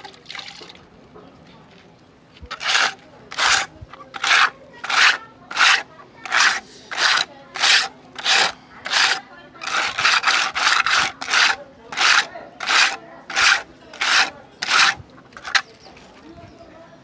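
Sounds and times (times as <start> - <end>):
hand tool scraping rough wall: 2.5 - 15.7.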